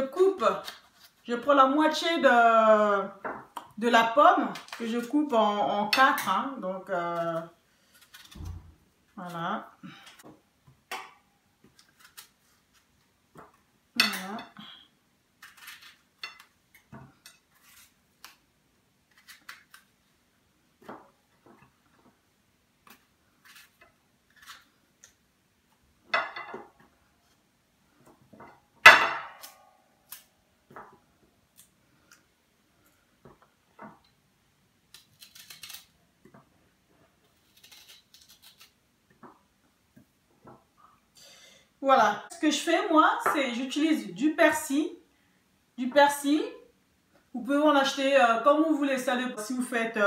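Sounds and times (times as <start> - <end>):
knife cutting apple: 11.6 - 14.4, 15.4 - 18.4, 19.1 - 19.9, 22.8 - 25.2, 34.9 - 36.5, 37.2 - 38.8.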